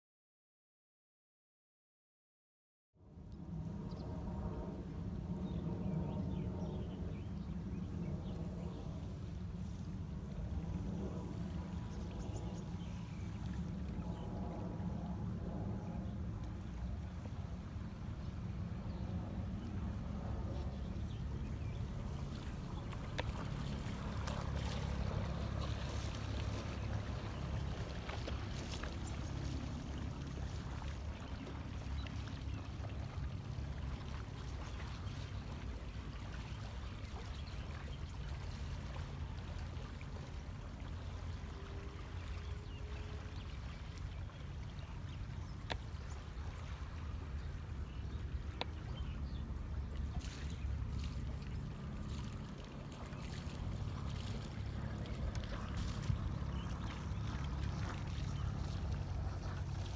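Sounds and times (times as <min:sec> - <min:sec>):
boat engine humming: 0:08.4 - 0:59.9
water splashing and trickling: 0:09.0 - 0:14.6, 0:20.8 - 0:59.9.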